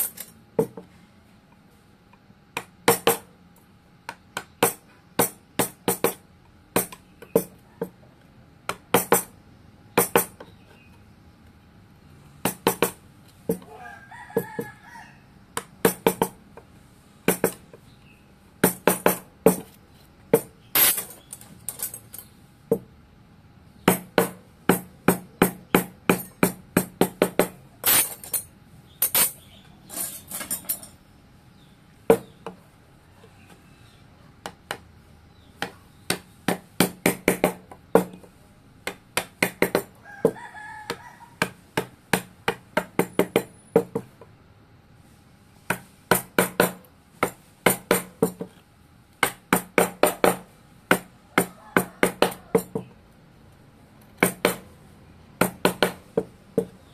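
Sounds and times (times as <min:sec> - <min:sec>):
mallet striking chisel into wood: 0:02.6 - 0:03.3, 0:08.7 - 0:09.3, 0:18.6 - 0:19.7, 0:23.9 - 0:27.6, 0:35.6 - 0:38.2, 0:38.8 - 0:39.9, 0:45.7 - 0:48.5, 0:49.2 - 0:52.9, 0:54.2 - 0:54.6, 0:55.4 - 0:56.7
rooster crowing: 0:13.6 - 0:15.4, 0:40.0 - 0:41.6, 0:51.2 - 0:52.9.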